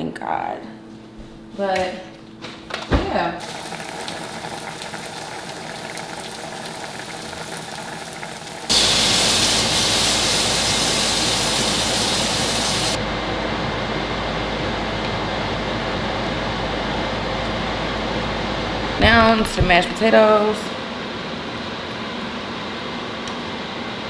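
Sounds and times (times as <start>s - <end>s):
cooking hiss under range hood: 3.4s - 13.0s.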